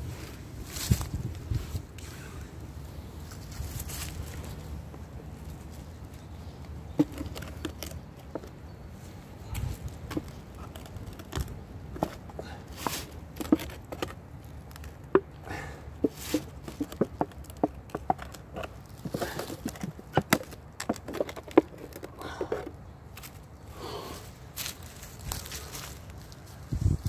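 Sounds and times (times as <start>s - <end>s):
dry leaves crackling: 3.2s - 8.4s, 23.1s - 27.0s
hand scraping and tapping box: 6.9s - 8.7s, 9.6s - 15.4s, 16.0s - 23.3s.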